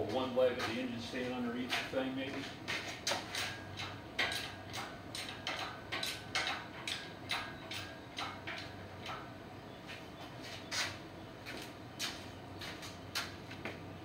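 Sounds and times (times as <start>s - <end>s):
hydraulic hoist pump clicking: 3.1s - 9.2s.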